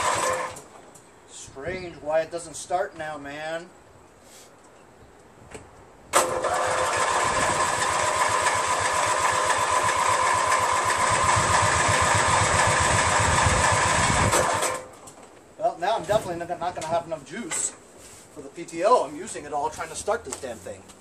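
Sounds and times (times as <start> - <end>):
engine starter cranking: 0.0 - 0.7, 6.1 - 15.1.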